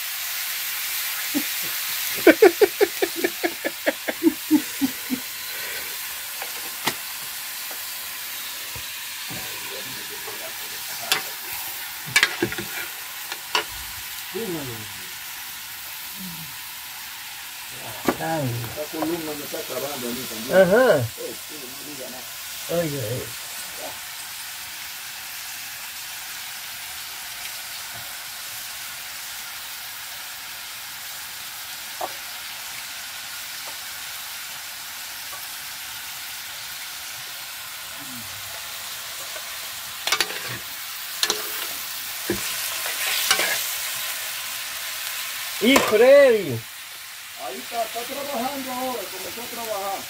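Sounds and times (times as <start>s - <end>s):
meat sizzling in a pot: 0.0s - 50.0s
metal spoon scraping a pot: 11.0s - 13.7s, 40.0s - 43.8s.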